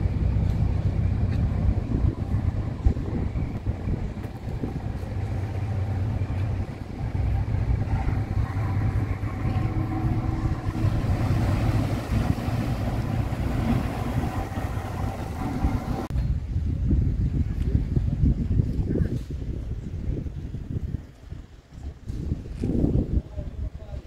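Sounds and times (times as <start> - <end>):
faint hum: 0.0 - 16.1
engine rumbling: 0.0 - 16.6.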